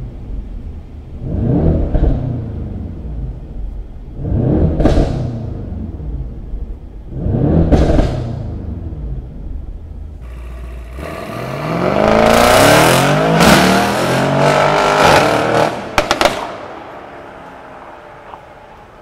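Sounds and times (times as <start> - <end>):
exhaust cracks: 1.2 - 2.5, 4.2 - 5.7, 7.1 - 8.8, 10.1 - 16.8
car engine accelerating hard: 1.2 - 3.4, 4.2 - 6.4, 7.1 - 9.3, 10.2 - 16.2.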